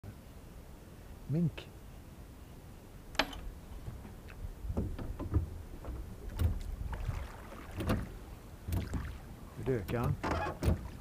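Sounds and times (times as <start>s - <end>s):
oars knocking in oarlocks: 4.7s - 9.2s, 9.8s - 11.0s.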